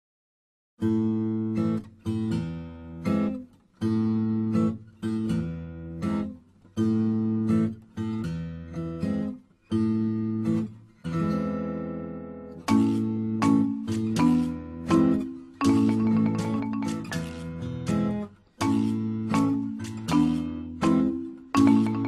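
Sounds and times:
strummed acoustic guitar: 0.8s - 22.0s.

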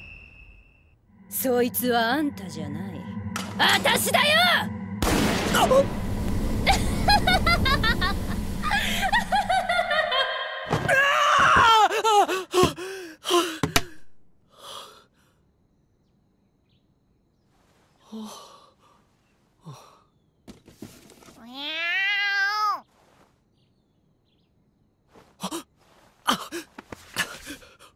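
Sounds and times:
animated blast: 3.3s - 9.0s
cat meowing: 21.4s - 22.9s.

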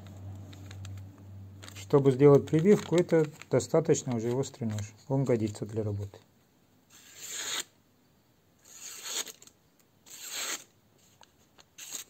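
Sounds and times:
knife slicing paper: 6.9s - 7.7s, 8.6s - 10.7s, 11.7s - 12.0s.

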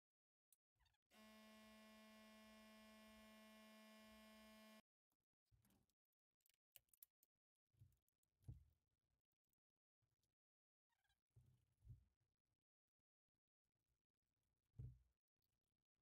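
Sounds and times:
faint electrical buzz: 1.2s - 4.8s.

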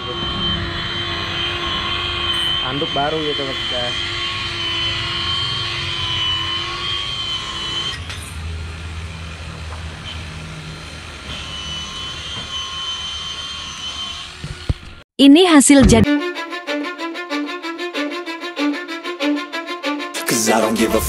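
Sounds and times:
deep rumble: 0.0s - 5.9s
machinery hum with high whine: 0.0s - 15.0s.

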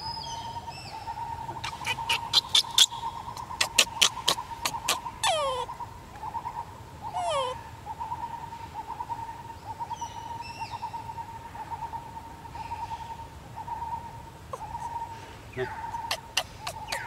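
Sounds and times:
baby monkey whimpering cries: 1.6s - 5.8s, 7.0s - 7.6s, 14.5s - 17.0s.

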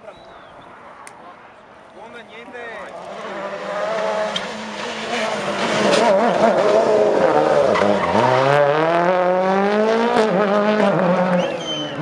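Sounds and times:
rally car engine: 2.8s - 12.0s.

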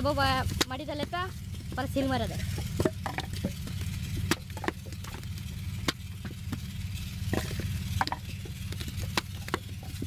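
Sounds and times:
steady low hum: 0.0s - 10.0s
wet clay squishing and slapping: 7.4s - 10.0s.

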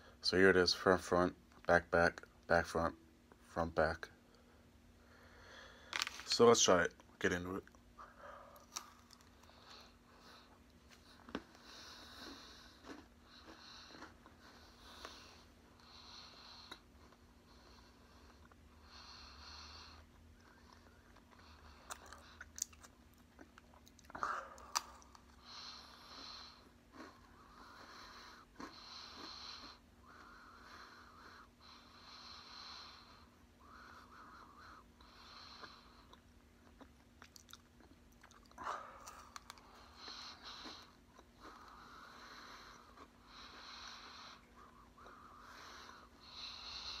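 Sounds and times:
person chewing with crunches: 8.5s - 15.8s, 19.9s - 31.5s, 35.3s - 47.0s
breathing through the nose: 41.6s - 47.0s.

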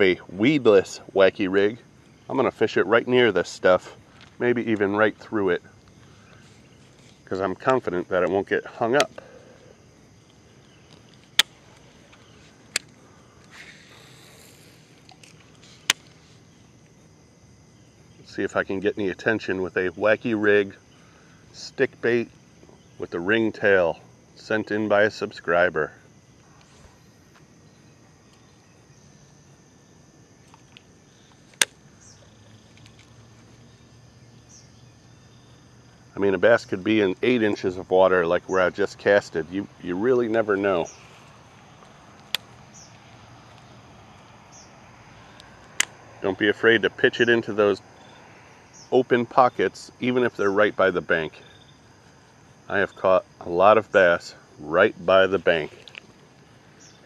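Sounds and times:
soft hiss: 0.0s - 19.3s, 20.0s - 57.0s
crickets chirring: 0.0s - 57.0s
fishing reel clicking: 13.5s - 15.3s
sharp click: 31.5s - 31.8s.

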